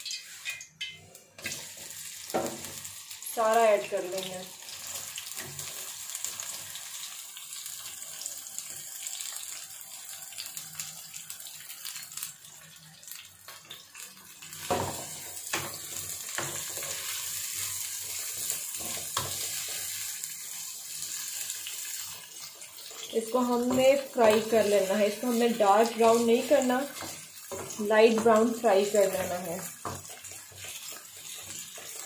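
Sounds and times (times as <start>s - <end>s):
onions sizzling in hot oil: 0.0s - 32.0s.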